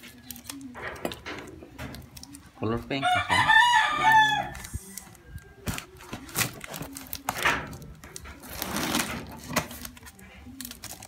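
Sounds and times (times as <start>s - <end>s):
packing tape tearing: 4.5s - 11.0s.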